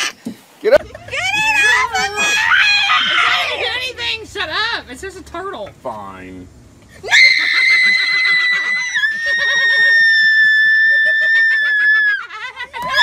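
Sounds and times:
girl screaming high-pitched: 1.1 - 3.7.

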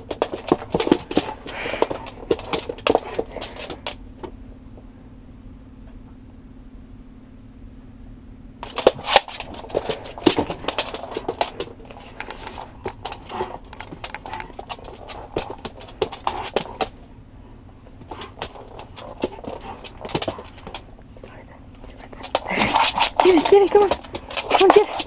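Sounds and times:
dog claws scratching on wood floor: 0.0 - 4.0, 8.6 - 17.0, 18.0 - 25.0
low steady hum: 0.0 - 25.0.

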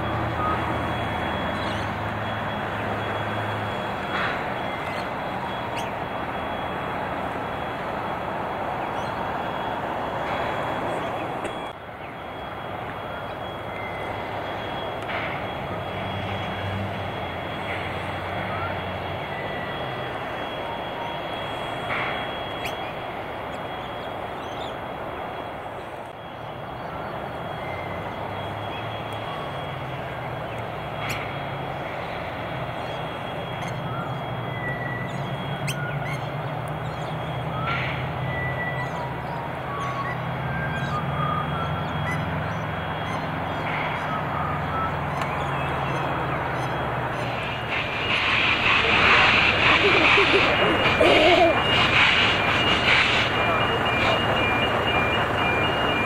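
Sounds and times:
thin steady whine: 0.0 - 56.0
bird chirps: 0.4 - 3.8, 4.6 - 6.7, 21.0 - 24.8, 32.7 - 56.0
steam locomotive hissing: 12.4 - 26.0, 42.3 - 56.0.

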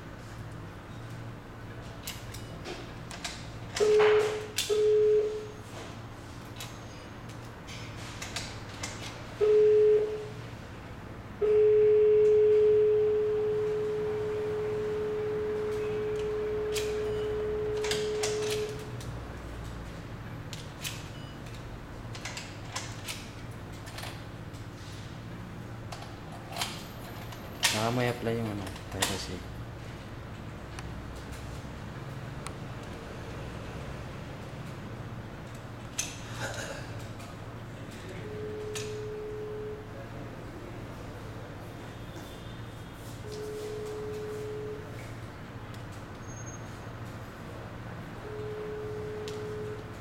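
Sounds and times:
door lock buzzer beeping: 3.8 - 5.6, 9.4 - 10.3, 11.4 - 18.9, 38.3 - 39.9, 48.2 - 50.0.

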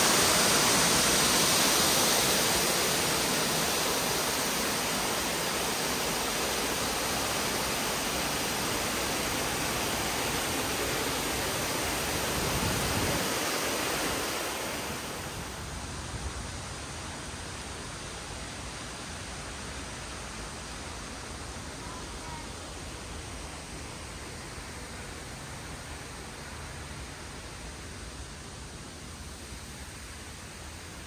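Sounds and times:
waterfall rushing: 0.0 - 15.7.

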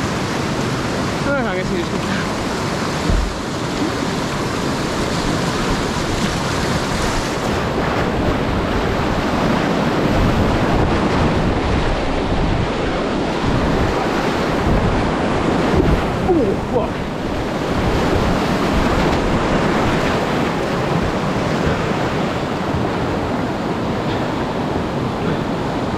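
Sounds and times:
whitewater rapids rushing: 0.0 - 25.9
wind rumbling on microphone: 0.0 - 25.9
short low thump: 3.0 - 3.4.

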